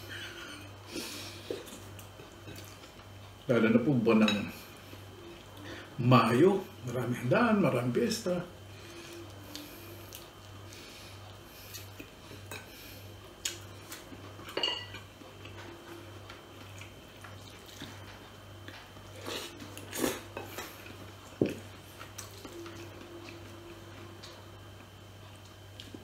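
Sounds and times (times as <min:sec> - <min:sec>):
faint low hum: 0:00.0 - 0:26.0
cutlery clinking on plate: 0:14.5 - 0:15.0.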